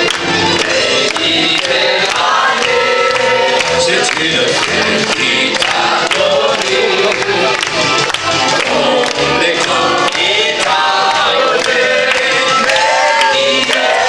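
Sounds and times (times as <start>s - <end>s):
audience clapping along: 0.0s - 14.0s
keyboard backing with steady beat: 0.0s - 14.0s
man singing into a microphone: 3.8s - 7.1s.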